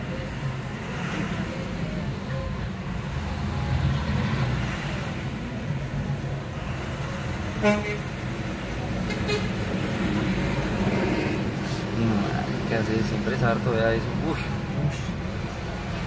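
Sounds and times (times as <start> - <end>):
engine and traffic rumble: 0.0 - 16.0
vehicle horn toot: 7.6 - 8.1.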